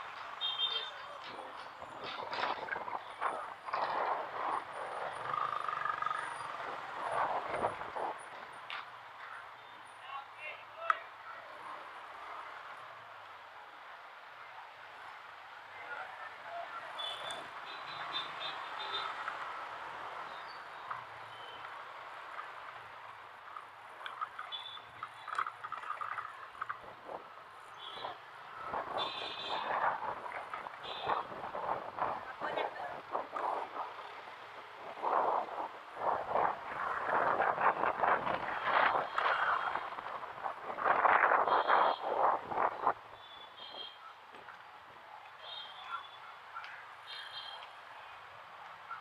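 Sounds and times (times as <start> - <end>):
street traffic: 0.0 - 49.0.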